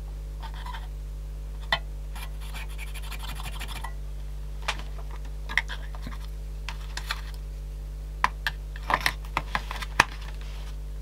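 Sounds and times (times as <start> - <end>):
steady low hum: 0.0 - 11.0
small clicks and scrapes: 5.1 - 7.4.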